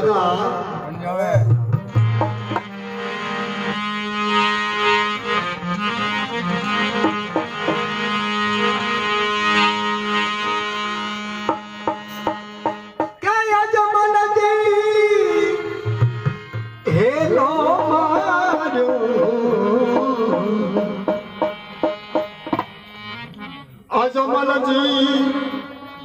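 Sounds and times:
harmonium drone: 0.0 - 26.0
drum strokes: 1.4 - 3.0, 6.9 - 8.1, 11.4 - 13.2, 19.9 - 23.0.

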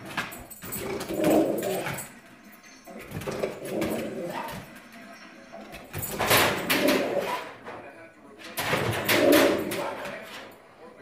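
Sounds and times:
dog whining: 0.8 - 2.1.

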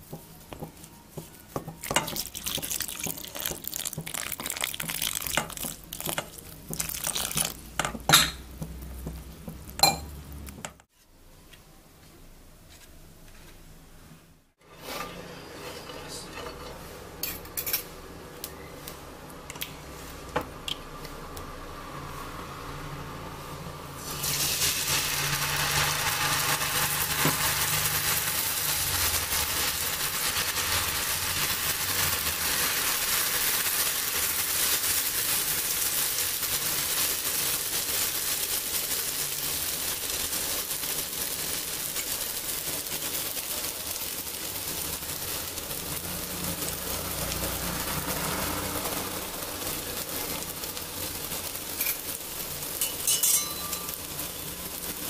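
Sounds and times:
batter sizzling in hot oil: 0.0 - 10.7, 23.9 - 55.0.

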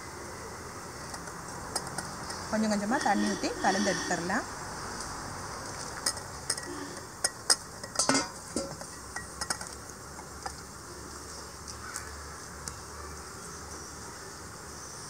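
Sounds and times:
crickets chirring: 0.0 - 10.9
steel vessels clinking: 1.1 - 4.4, 5.9 - 9.8.

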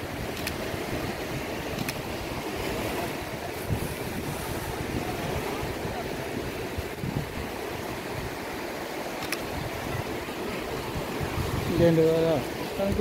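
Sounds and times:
surf washing onto beach: 0.0 - 13.0
wind on microphone: 0.0 - 13.0
sharp click: 1.8 - 2.0, 9.2 - 9.5.

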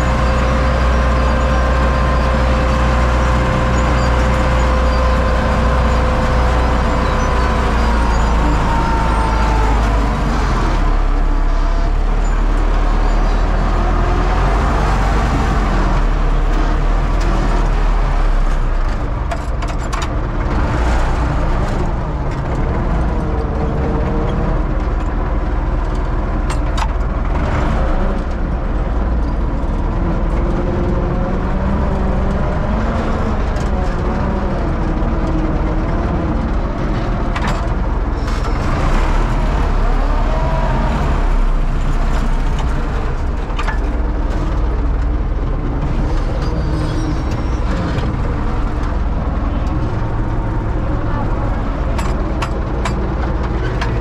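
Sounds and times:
high engine whine: 0.0 - 54.0
tractor diesel engine running: 0.0 - 54.0.

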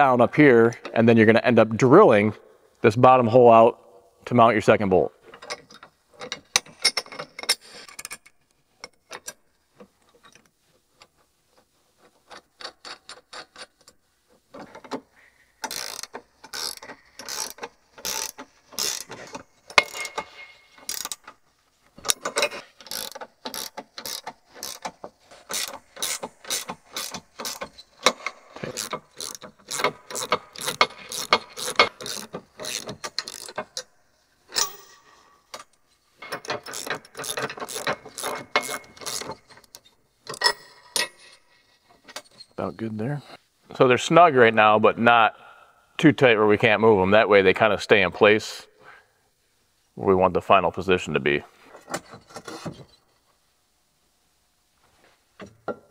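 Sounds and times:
ratcheting wrench clicking: 15.6 - 21.4, 22.0 - 33.9, 35.6 - 41.4.

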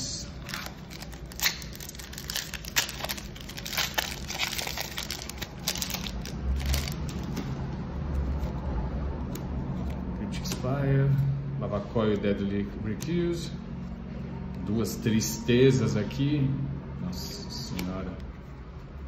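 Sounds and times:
foil wrapper crinkling: 0.4 - 7.3.

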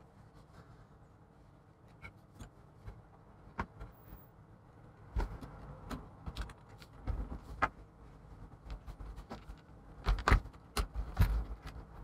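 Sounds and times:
plastic parts clicking and tapping: 5.1 - 7.8, 8.7 - 12.0.

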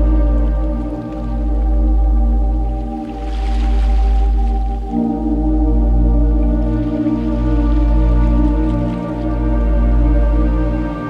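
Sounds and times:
slow ambient music: 0.0 - 11.0.

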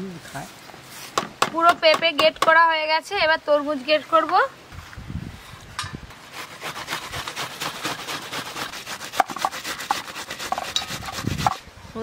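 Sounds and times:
fruit rasping on a metal grater: 6.1 - 11.7.

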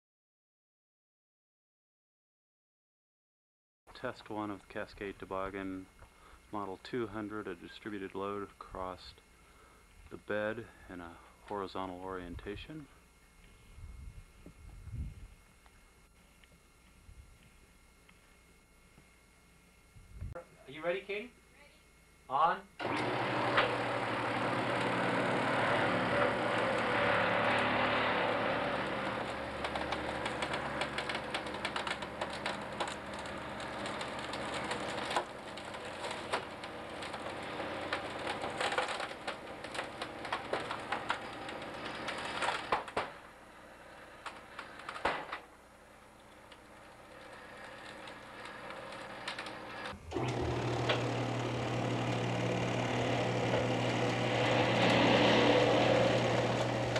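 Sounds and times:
steady low hum: 3.9 - 22.8
test rig motor under load: 22.8 - 56.9
plastic shell crackling and creaking: 28.8 - 43.1, 44.2 - 45.4, 46.2 - 56.9
loud cracks: 28.9 - 43.2, 44.2 - 45.4.

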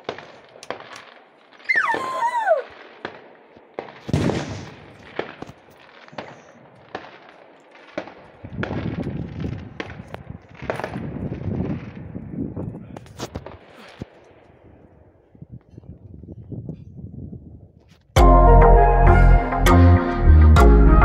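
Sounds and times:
fireworks crackling: 0.0 - 14.9
fireworks bangs and pops: 0.0 - 16.1
falling whistle of fireworks: 0.1 - 3.2.

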